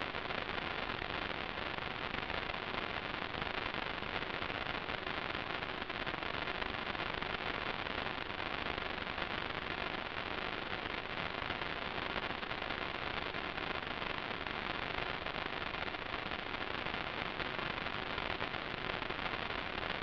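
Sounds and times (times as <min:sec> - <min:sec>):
static hiss: 0:00.0 - 0:20.0.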